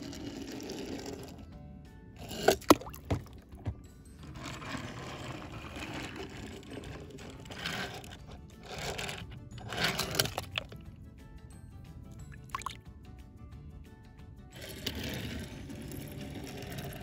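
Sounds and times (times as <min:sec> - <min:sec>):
toy car wheels rattling on wood: 0:00.0 - 0:01.5, 0:02.2 - 0:10.9, 0:14.5 - 0:17.0.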